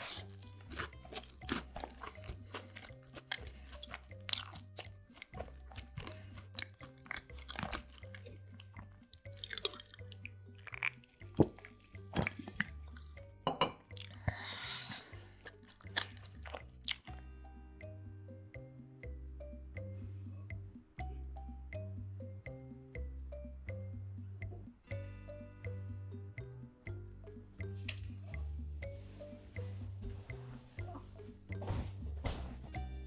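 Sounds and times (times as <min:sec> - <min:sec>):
chewing and crunching sandwich: 0:00.0 - 0:13.2, 0:13.9 - 0:14.3, 0:14.9 - 0:17.2
soft background music: 0:00.0 - 0:33.0.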